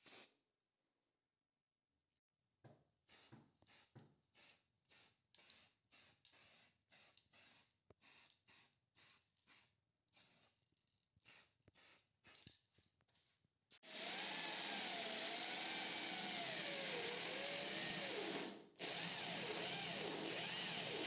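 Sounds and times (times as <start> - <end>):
spray can hissing: 0.0 - 0.3, 3.1 - 10.5, 11.2 - 12.5.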